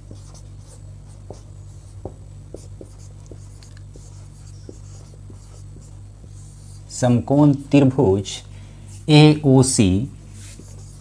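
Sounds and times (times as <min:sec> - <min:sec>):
marker writing on whiteboard: 0:00.0 - 0:06.8, 0:10.4 - 0:11.0.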